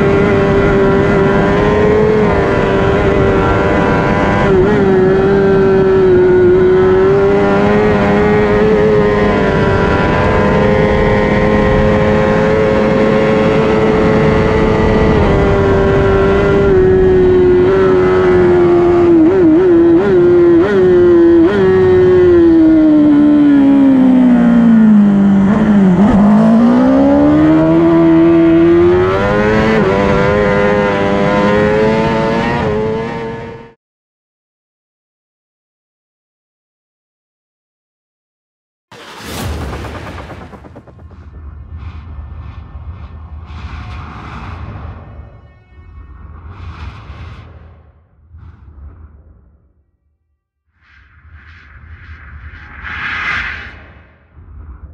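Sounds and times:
wind rush on microphone: 0.0s - 19.3s
motorcycle engine at high revs: 0.0s - 33.7s.

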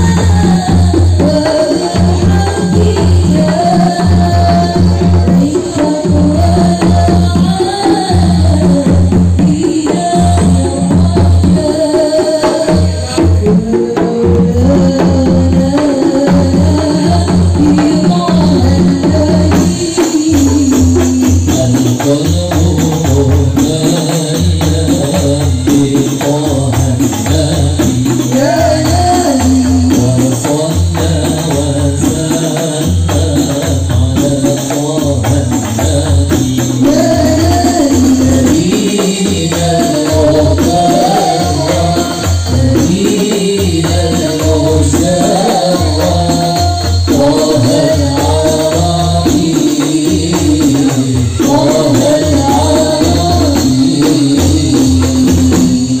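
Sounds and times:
frame drums and hand drums: 0.0s - 56.0s
person singing through a microphone: 0.0s - 56.0s.

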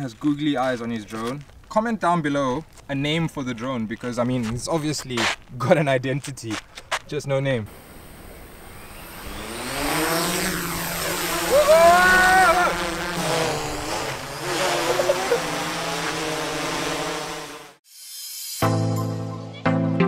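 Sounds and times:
drone propellers buzzing: 7.7s - 17.8s
rising and falling tone: 7.8s - 17.8s.

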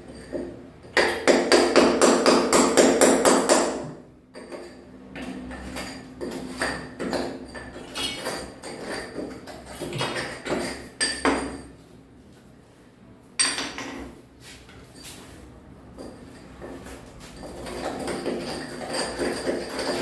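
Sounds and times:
hammer striking chisel into tile: 0.4s - 4.7s.

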